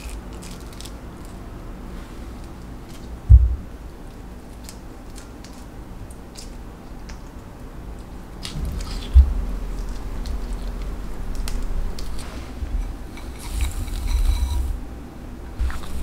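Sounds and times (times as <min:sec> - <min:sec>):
dull thump: 0:03.3 - 0:03.7, 0:08.6 - 0:10.4
wet squishing of fruit: 0:04.1 - 0:14.1
sugar pouring hiss: 0:09.7 - 0:14.8, 0:15.6 - 0:16.0.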